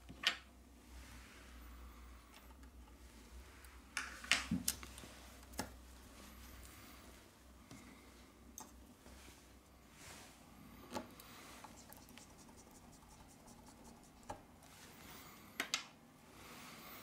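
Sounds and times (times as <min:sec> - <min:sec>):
soft rubbing and scratching: 0:09.0 - 0:15.3.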